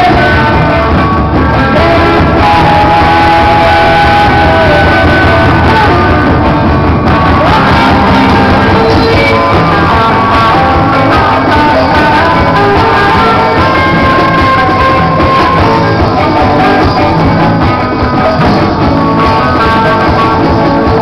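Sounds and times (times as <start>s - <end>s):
bass guitar: 0.0s - 21.0s
drum kit: 0.0s - 21.0s
electric guitars: 0.0s - 21.0s
person singing: 0.0s - 21.0s.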